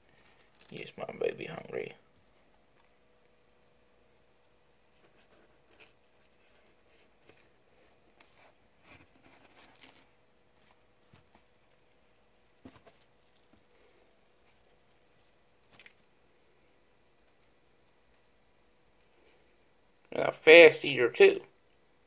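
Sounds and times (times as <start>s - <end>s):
faint steady hum: 0.0s - 22.0s
soft clicks and rustles: 2.1s - 19.5s.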